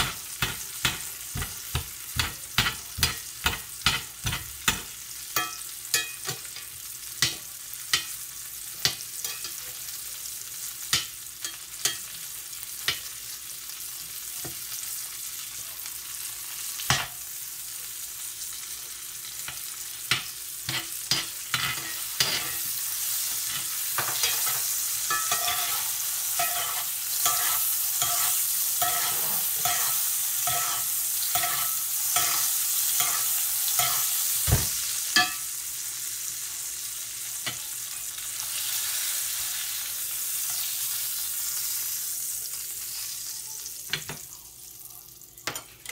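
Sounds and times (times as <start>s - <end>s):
steak sizzling in fat: 0.0s - 45.9s
metal spoon scraping pan: 19.5s - 34.4s.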